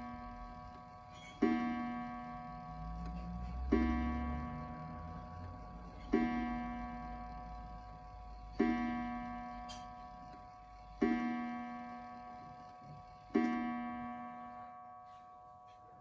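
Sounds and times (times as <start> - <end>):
clock striking on gong: 0.0 - 10.2.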